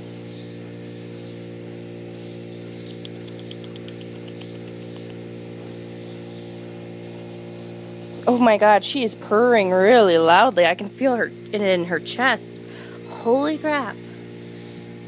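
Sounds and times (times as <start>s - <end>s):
steady low multi-tone hum: 0.0s - 15.0s
faint fast ticks: 2.8s - 5.2s.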